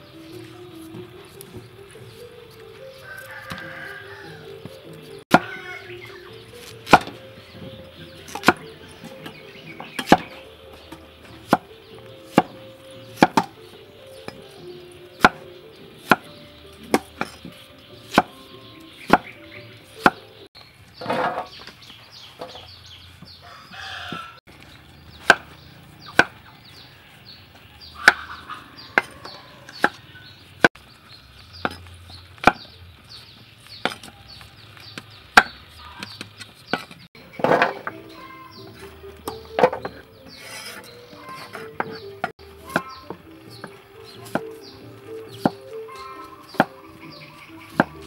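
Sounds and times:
chickens calling: 0.0s - 48.0s
cleaver chopping on wooden board: 5.3s - 5.7s, 6.6s - 20.3s, 25.1s - 26.4s, 28.0s - 28.4s, 29.0s - 30.0s, 31.6s - 32.8s, 35.0s - 38.0s, 39.2s - 48.0s.

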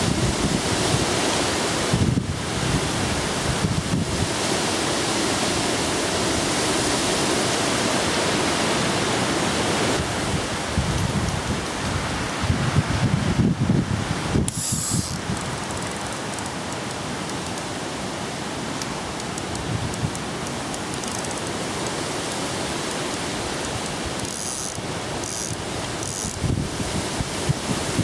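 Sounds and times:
steady rush of noise: 0.0s - 28.0s
wind buffeting microphone: 1.9s - 4.4s, 10.0s - 16.1s, 26.3s - 28.0s
fishing reel clicking: 14.5s - 17.7s, 18.8s - 22.0s, 22.9s - 26.4s.

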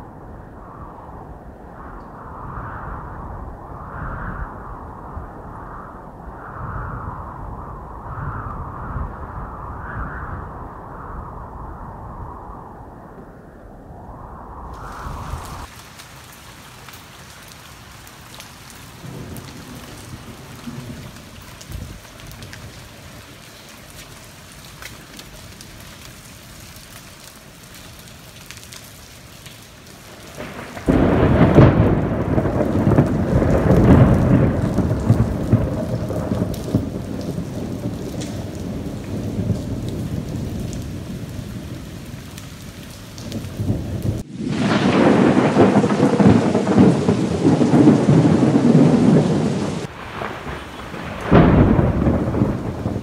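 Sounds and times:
steady rain falling: 0.0s - 53.0s
loud rolling thunder: 18.9s - 23.2s, 30.1s - 53.0s.

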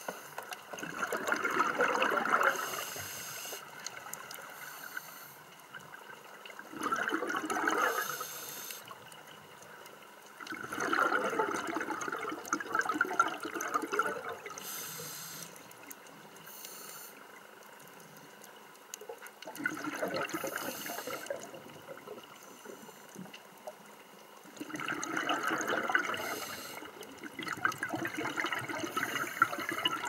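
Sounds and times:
bubbling exhalations underwater: 0.8s - 2.8s, 6.7s - 8.1s, 10.5s - 14.6s, 19.5s - 22.3s, 24.6s - 30.0s
regulator inhalation hiss: 2.5s - 3.8s, 4.5s - 5.5s, 7.9s - 9.0s, 14.6s - 15.7s, 16.4s - 17.2s, 20.3s - 21.4s, 26.2s - 27.0s.

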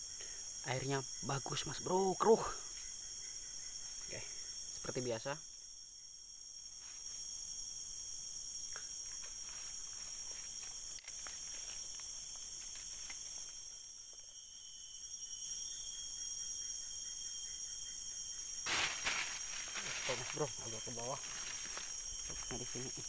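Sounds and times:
forest insects buzzing: 0.0s - 23.0s
faint ticks and rustles: 8.6s - 14.3s.

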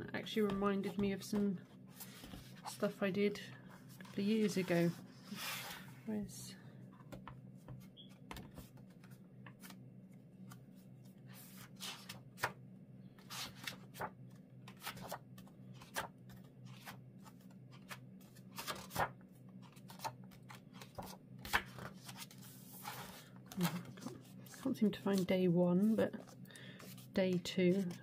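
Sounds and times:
sketchbook pages rustling: 3.7s - 5.9s, 13.2s - 28.0s.

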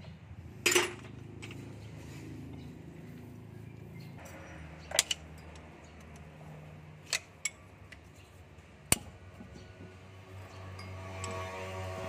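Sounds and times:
spanner clinking on metal bolts: 0.6s - 1.7s, 4.2s - 11.6s.

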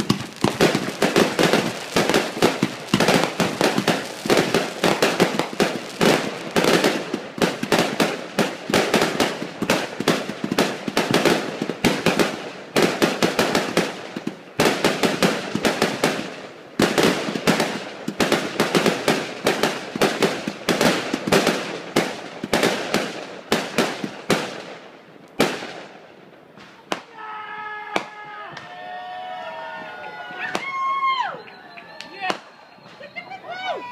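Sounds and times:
fireworks bursting: 0.0s - 27.2s, 30.4s - 33.9s
fireworks crackling: 0.0s - 28.8s, 30.4s - 33.9s.

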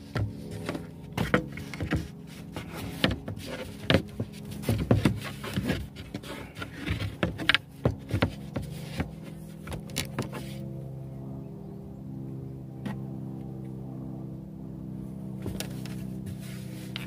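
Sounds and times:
steady low hum: 0.0s - 17.0s
wooden panels knocking and scraping: 0.1s - 10.5s.

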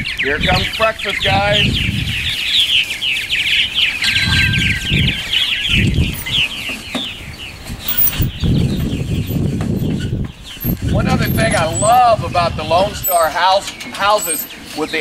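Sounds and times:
purple martins chattering: 0.0s - 15.0s
low rumble: 4.0s - 6.4s.

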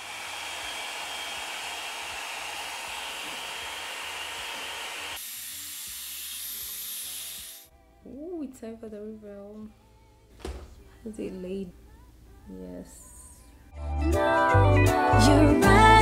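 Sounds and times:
hair dryer blowing: 0.0s - 7.7s.

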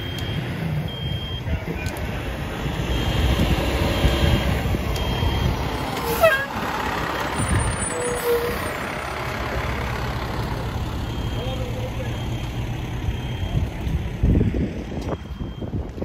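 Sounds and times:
faint high beeps: 0.0s - 1.6s, 11.0s - 13.8s, 15.1s - 15.8s
truck engine rumbling: 0.0s - 16.0s
short falling squeal: 7.4s - 8.7s.

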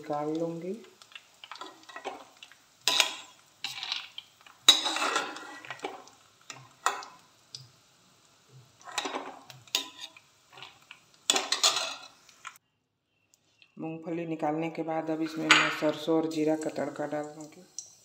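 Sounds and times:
oil sizzling faintly: 0.0s - 12.6s, 14.4s - 18.0s
ladle scraping steel pan: 4.7s - 6.0s, 11.3s - 12.2s.

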